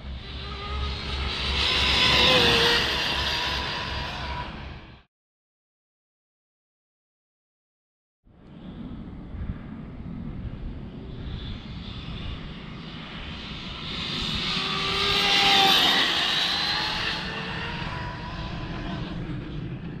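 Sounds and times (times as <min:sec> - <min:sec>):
rc truck motor whining: 0:00.0 - 0:05.0, 0:13.8 - 0:19.0
wind rumble: 0:00.0 - 0:05.0, 0:08.3 - 0:20.0.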